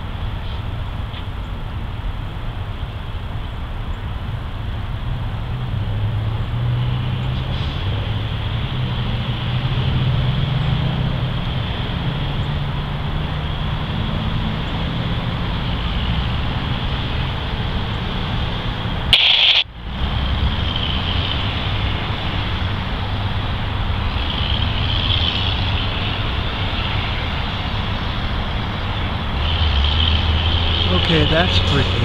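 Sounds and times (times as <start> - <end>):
distant locomotive engine drone: 0.0 - 32.0
steady hiss: 19.1 - 19.6.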